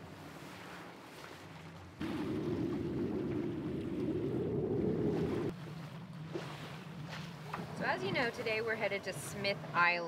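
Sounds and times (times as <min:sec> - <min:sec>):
wind buffeting microphone: 0:02.0 - 0:05.6.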